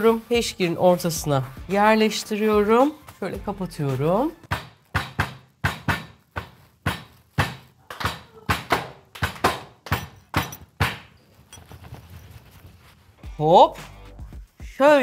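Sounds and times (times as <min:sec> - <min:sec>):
rolling pin beating wrapped bag: 0:04.0 - 0:11.4.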